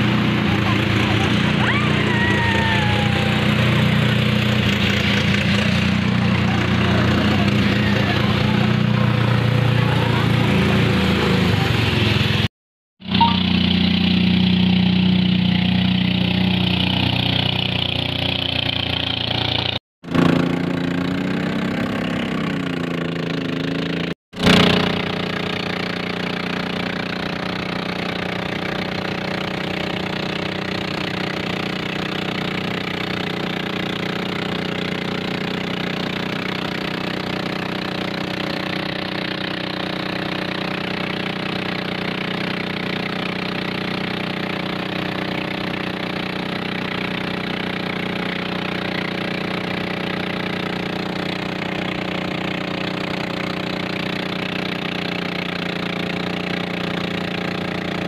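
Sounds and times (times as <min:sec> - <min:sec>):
small boat engine running: 0:00.0 - 0:58.0.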